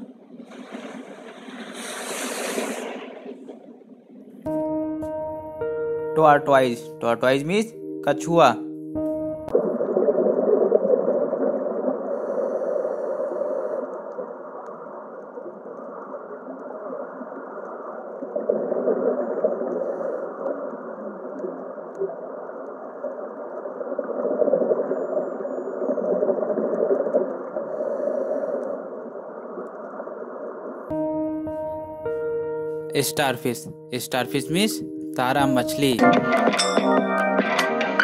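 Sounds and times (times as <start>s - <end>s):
dull underwater rushing: 0.0s - 4.6s, 9.4s - 32.2s.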